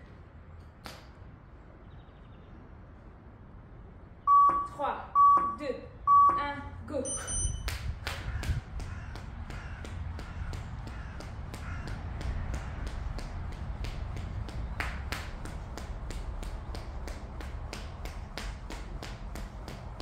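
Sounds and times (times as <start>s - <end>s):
skipping rope slapping floor: 7.7s - 20.0s.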